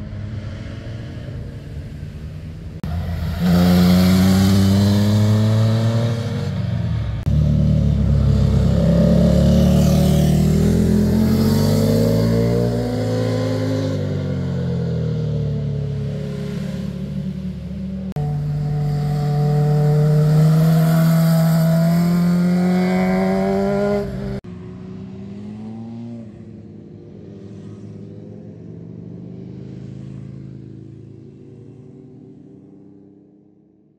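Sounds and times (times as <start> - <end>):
motorcycle engine accelerating: 2.8 - 26.5
quiet engine drone: 16.5 - 20.7.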